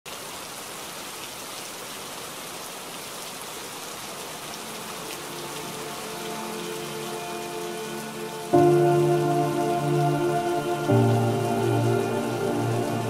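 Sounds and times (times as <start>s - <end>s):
steady rain falling: 0.1s - 13.0s
soft sustained music notes: 4.4s - 13.0s.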